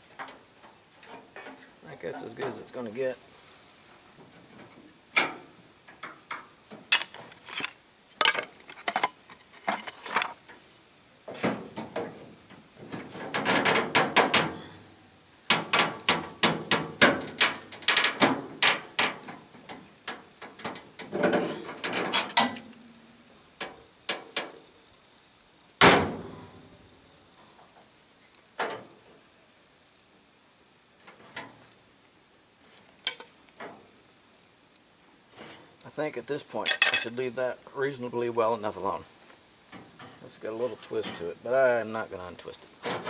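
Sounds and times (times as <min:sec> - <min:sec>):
sheet metal being pried and bent: 0:12.8 - 0:14.7, 0:15.5 - 0:22.8.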